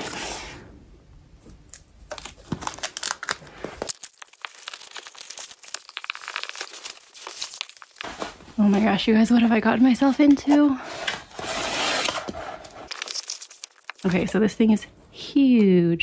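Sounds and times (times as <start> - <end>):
plastic wrap crinkling: 1.7 - 14.4
canvas unrolling: 3.6 - 13.8.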